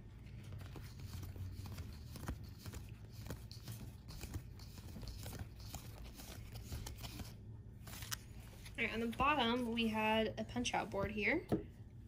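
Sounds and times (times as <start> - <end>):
low steady hum: 0.0 - 12.0
cards being flipped: 0.3 - 8.8.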